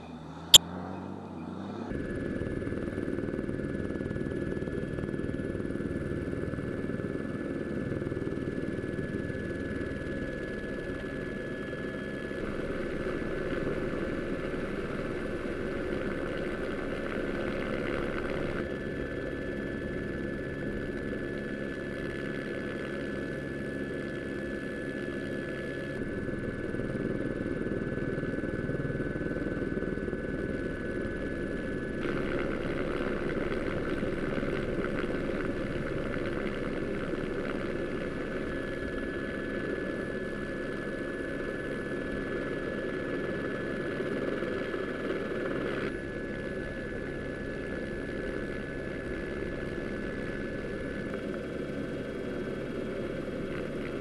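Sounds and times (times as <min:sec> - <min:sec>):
engine low rumble: 0:00.0 - 0:03.8
high engine whine: 0:00.0 - 0:54.0.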